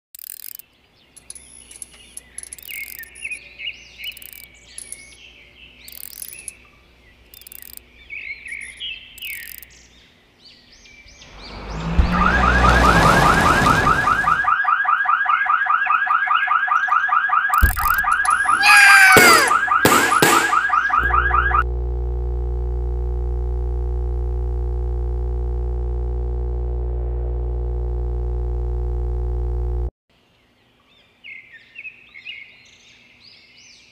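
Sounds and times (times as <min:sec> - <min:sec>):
birds chirping: 0:00.6 - 0:14.6
rising whoosh: 0:11.2 - 0:14.4
warbling police siren: 0:11.3 - 0:21.7
falling whistle-like glide: 0:11.4 - 0:14.6
thud: 0:19.2 - 0:20.7
held drone of several tones: 0:19.5 - 0:29.9.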